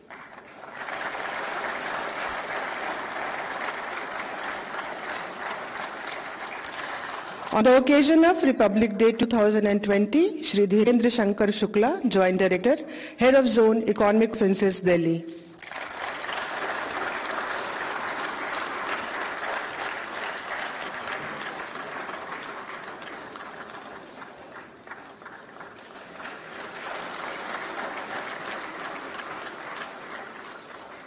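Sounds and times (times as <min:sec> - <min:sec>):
audience applauding: 0:00.0 - 0:08.2, 0:15.5 - 0:31.0.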